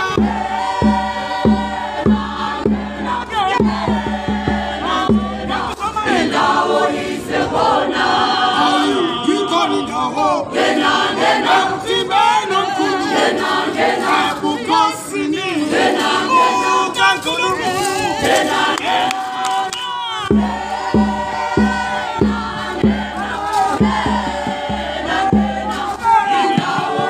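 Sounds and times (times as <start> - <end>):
steady low beat: 0.0 - 6.6, 20.3 - 27.0
group of voices singing: 0.0 - 27.0.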